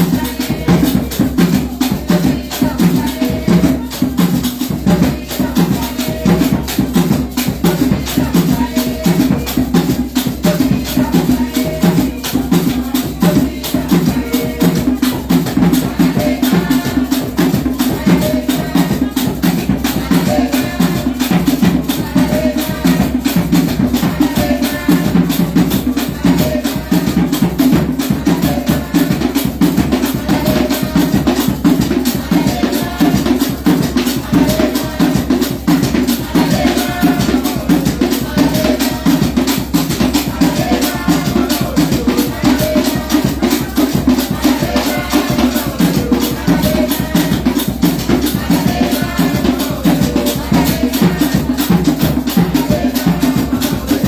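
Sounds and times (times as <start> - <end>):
rattling percussion: 0.0 - 54.0
wooden hand drums: 0.0 - 54.0.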